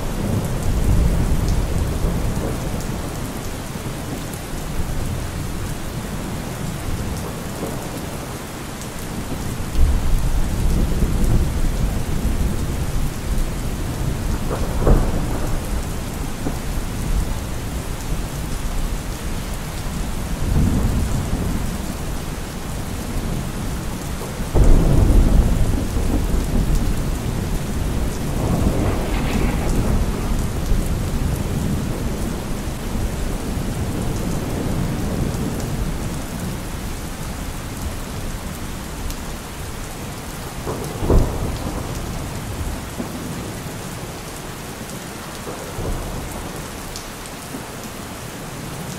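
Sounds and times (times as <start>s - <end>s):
low thunder rumbling: 0.0s - 3.5s, 9.1s - 36.8s, 40.5s - 43.8s
steady rain: 0.0s - 48.9s.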